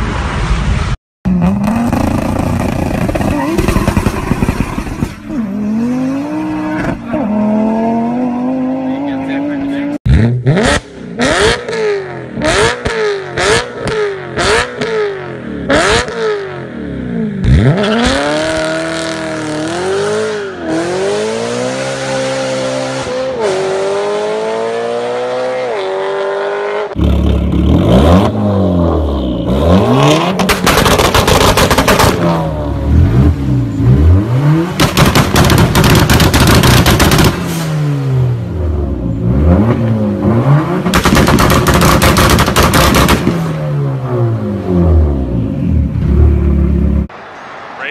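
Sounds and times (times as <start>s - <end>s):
car engine revving and accelerating: 1.3s - 47.9s
exhaust backfires crackling: 1.7s - 5.3s, 30.3s - 32.6s, 34.7s - 37.6s, 40.8s - 43.7s.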